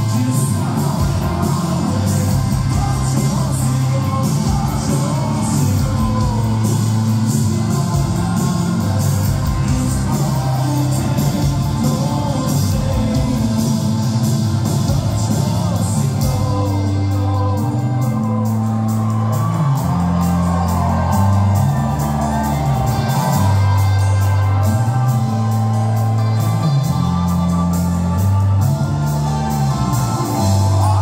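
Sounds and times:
lead vocal singing: 0.0 - 25.1, 29.5 - 31.0
live rock band playing: 0.0 - 31.0
crowd shouting: 14.9 - 31.0.

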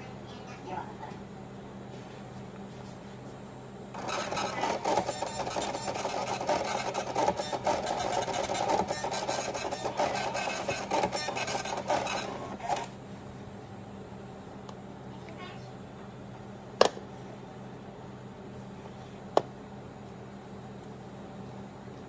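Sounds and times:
small machine buzzing rattle: 3.9 - 13.0.

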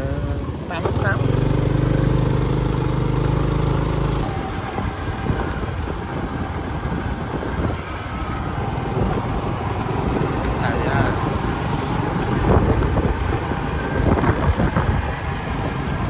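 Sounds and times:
scooter engine humming: 0.0 - 16.0
wind buffeting microphone: 4.2 - 16.0.

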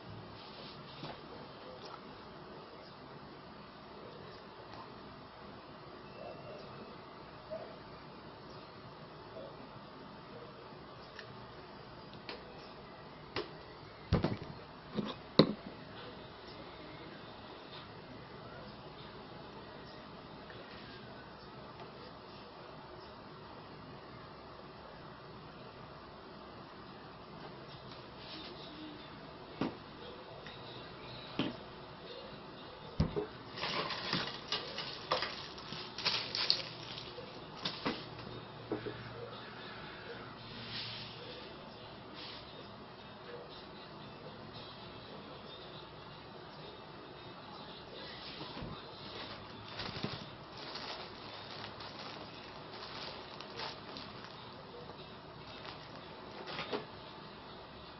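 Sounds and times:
plastic bag crinkling: 33.5 - 37.8, 49.0 - 54.6, 55.4 - 56.7.

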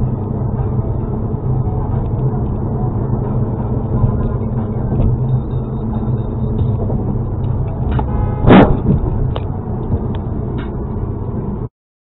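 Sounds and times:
car road and engine rumble: 0.0 - 11.7
loud bang: 7.9 - 9.3.

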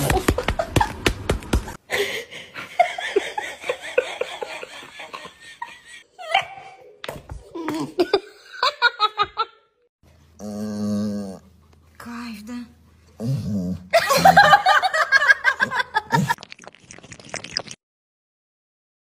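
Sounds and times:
person laughing: 0.0 - 1.1, 7.5 - 9.6, 14.0 - 16.4.

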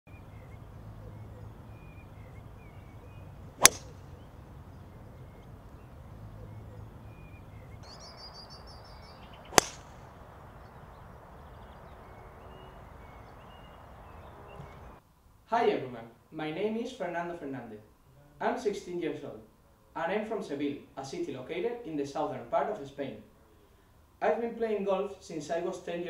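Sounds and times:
birds chirping: 0.1 - 15.0
golf driver striking ball: 3.6 - 4.3, 9.5 - 10.0.

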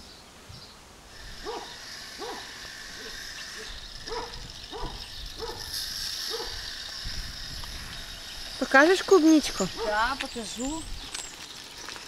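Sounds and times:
steady high hiss: 0.0 - 12.0
dog barking: 1.4 - 5.7, 6.3 - 6.6, 9.7 - 10.1.

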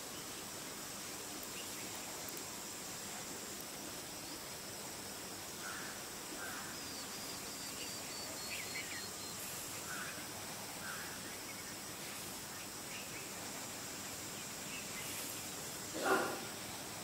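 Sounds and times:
steady high hiss: 0.0 - 17.0
faint bird calls: 5.6 - 11.8, 14.4 - 16.7.

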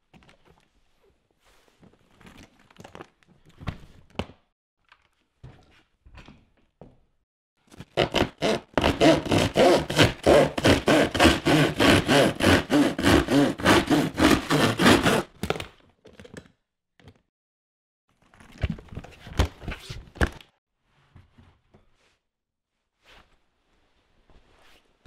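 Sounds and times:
fast rubbing or scraping strokes: 8.0 - 15.3.

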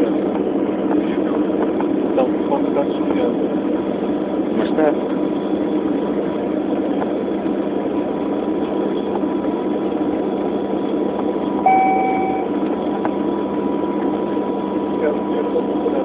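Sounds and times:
jet engine and air noise: 0.0 - 16.0
cabin chime: 11.7 - 12.5.

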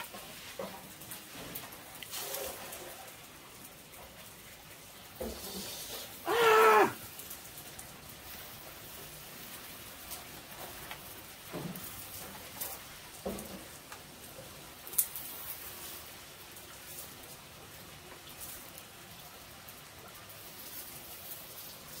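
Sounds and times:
frying pan sizzling: 0.0 - 22.0
wood fire crackling: 0.0 - 22.0
fainter lower animal calls: 5.9 - 7.0
high animal cry: 6.2 - 7.0.

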